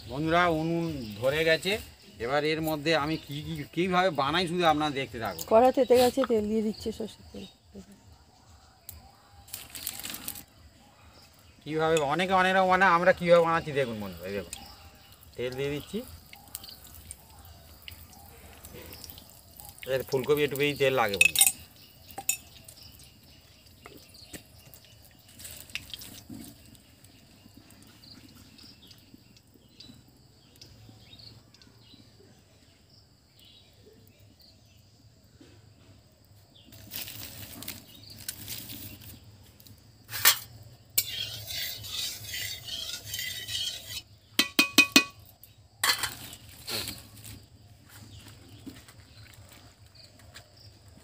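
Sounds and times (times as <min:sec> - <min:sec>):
metal dishes clinking and scraping: 0:21.2 - 0:22.6, 0:40.1 - 0:47.0
ringing taps: 0:44.4 - 0:45.2.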